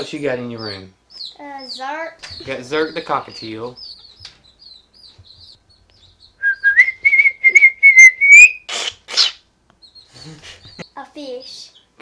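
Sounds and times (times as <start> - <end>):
cockatiel whistling: 6.4 - 9.4
rough hissy bird calls: 7.5 - 9.4.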